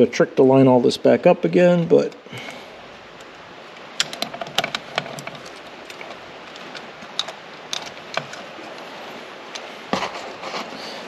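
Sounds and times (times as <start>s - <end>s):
metal parts clicking: 3.2s - 8.7s.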